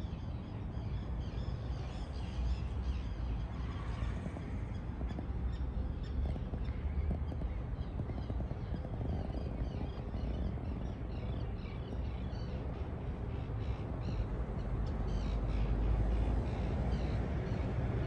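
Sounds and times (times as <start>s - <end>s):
steady low rumble: 0.0s - 18.0s
birds chirping: 2.0s - 14.2s.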